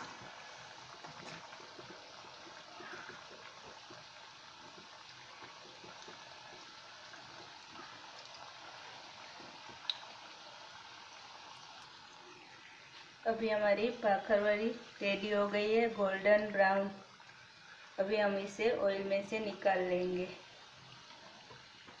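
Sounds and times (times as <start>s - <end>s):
deep-frying bubbling sizzle: 0.0s - 22.0s.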